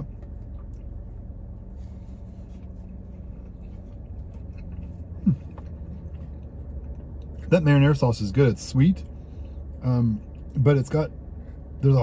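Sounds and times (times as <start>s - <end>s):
car interior rumble and hum: 0.0s - 12.0s
person chewing food: 2.1s - 7.4s.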